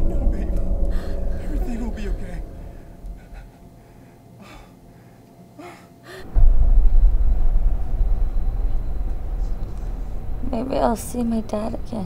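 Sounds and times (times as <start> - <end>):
loud low rumble: 0.0 - 4.0, 6.2 - 12.0
faint breaths: 0.8 - 1.4, 2.4 - 6.4.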